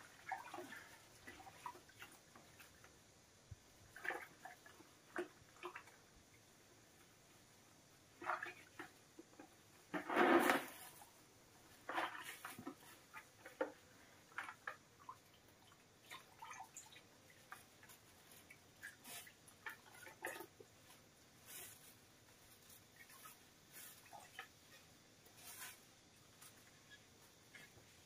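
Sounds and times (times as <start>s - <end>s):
water sloshing in a plastic bucket: 0.0s - 3.0s, 3.8s - 6.1s, 8.1s - 28.0s.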